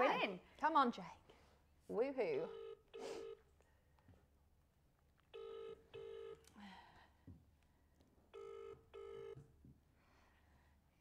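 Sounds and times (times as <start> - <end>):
telephone ringing tone: 5.4 - 6.5, 8.3 - 9.4.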